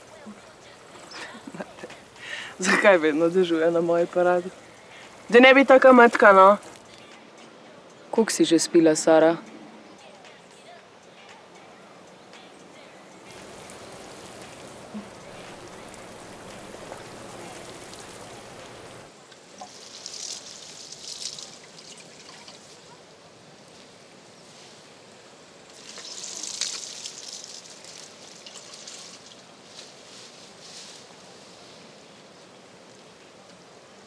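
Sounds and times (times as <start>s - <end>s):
watering can sprinkling plants: 0.0s - 7.0s, 13.3s - 23.0s, 25.7s - 31.1s
steady hiss: 0.0s - 34.0s.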